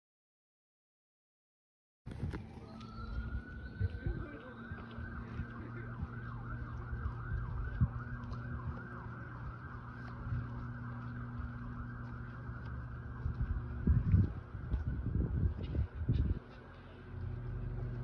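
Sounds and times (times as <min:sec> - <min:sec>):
distant emergency siren: 0:02.1 - 0:18.0.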